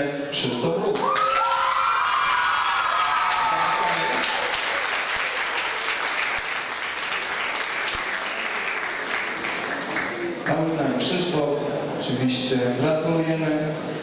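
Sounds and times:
audience applauding: 1.0 - 10.6.

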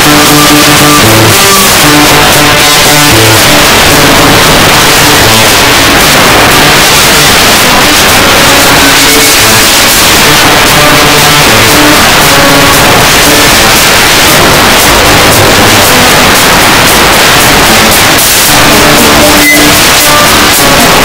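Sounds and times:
loud distorted music: 0.0 - 21.0.

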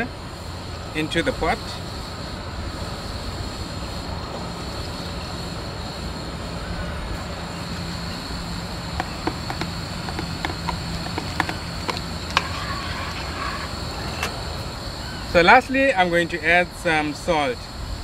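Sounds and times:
pot cooking low rumble: 8.5 - 14.5.

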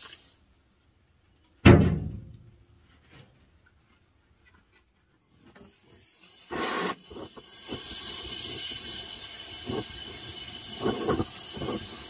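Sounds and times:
torch flame hissing: 5.7 - 12.0.

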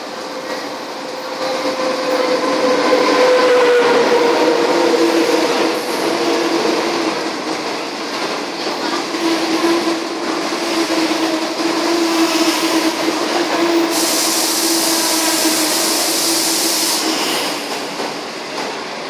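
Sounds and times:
train wheels humming on rails: 0.0 - 19.0
sharp hiss: 13.9 - 17.9.

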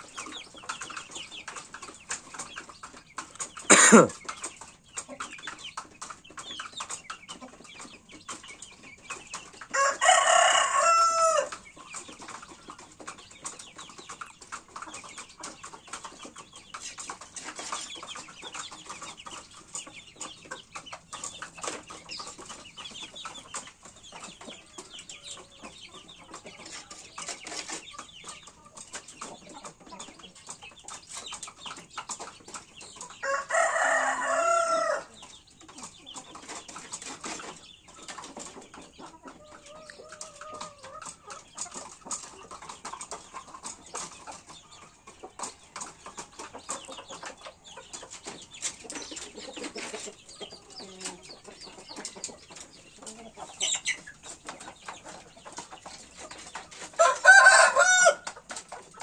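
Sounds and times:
chickens clucking softly: 0.0 - 59.0
rooster crowing: 9.8 - 11.5, 33.2 - 35.1, 57.0 - 58.2.

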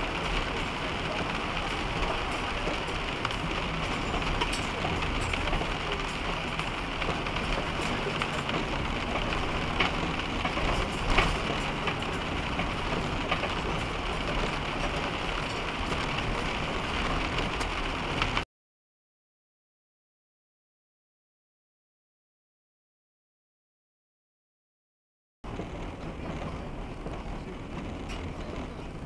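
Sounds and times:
freezing rain ticking on windshield: 0.0 - 18.4, 25.5 - 29.0
truck driving rumble: 0.0 - 18.4, 25.4 - 29.0.

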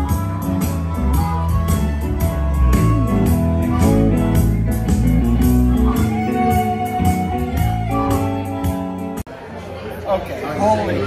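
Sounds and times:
blues band playing: 0.0 - 9.3.

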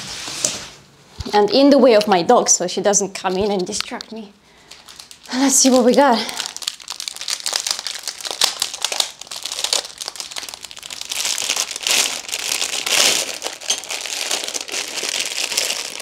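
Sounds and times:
packaging crinkling and rustling: 3.4 - 16.0.

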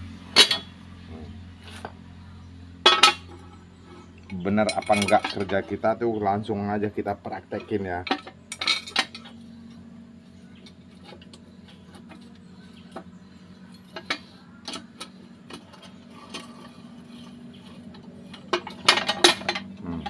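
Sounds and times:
steady low hum: 0.0 - 20.0
metal parts clicking and knocking: 4.6 - 5.8, 13.8 - 19.7.

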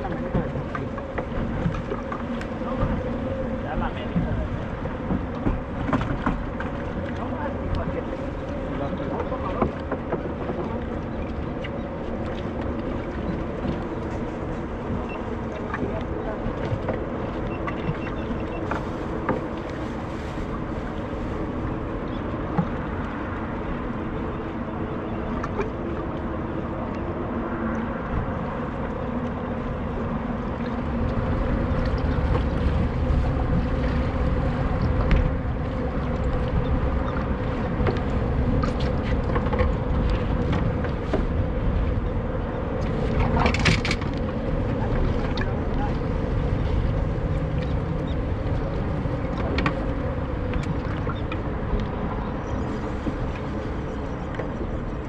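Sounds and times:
choppy water against boat hull: 0.0 - 55.0
wind buffeting microphone: 0.0 - 55.0.

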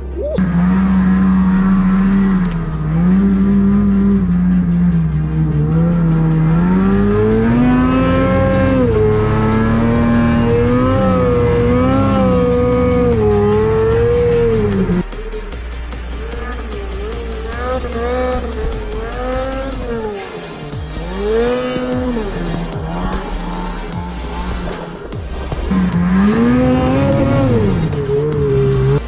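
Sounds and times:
snow bike engine revving: 0.0 - 15.1, 16.1 - 29.0.

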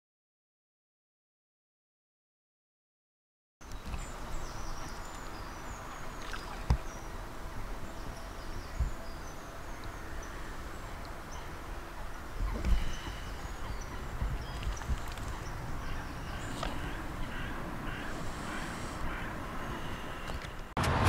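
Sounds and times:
small birds chirping: 3.6 - 20.7
wind rumble on microphone: 6.6 - 21.0.

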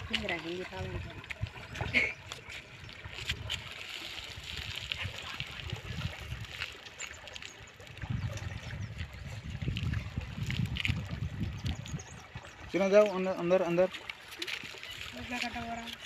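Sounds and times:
fish splashing at water surface: 0.0 - 12.7, 13.7 - 16.0
water sloshing and trickling: 0.0 - 16.0.

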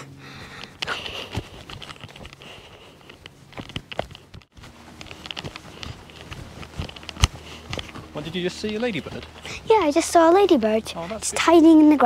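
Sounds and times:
footsteps on grass: 0.2 - 12.0
clothing rustle: 0.9 - 9.8.

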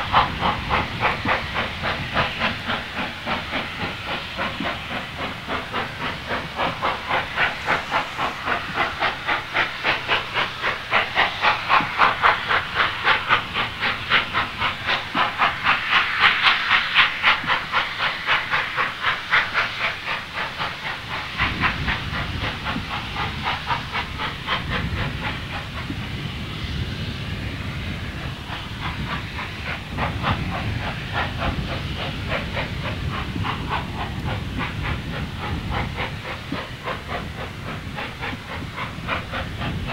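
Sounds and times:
steam locomotive exhaust beats: 0.0 - 39.9.

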